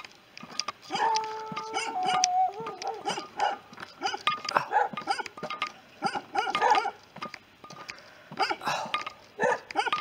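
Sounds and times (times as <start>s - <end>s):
dogs barking: 0.9s - 5.4s, 6.0s - 7.0s, 8.4s - 8.8s, 9.4s - 10.0s.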